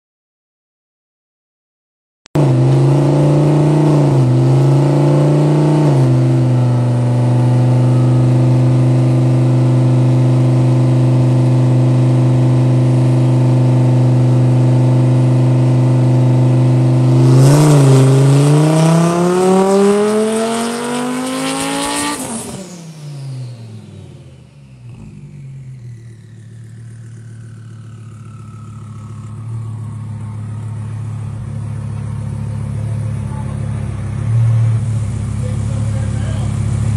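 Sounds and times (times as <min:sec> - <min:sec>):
car engine revving on dyno: 0:02.4 - 0:36.9
falling whine spinning down: 0:05.8 - 0:32.5
low rumble: 0:25.1 - 0:36.9.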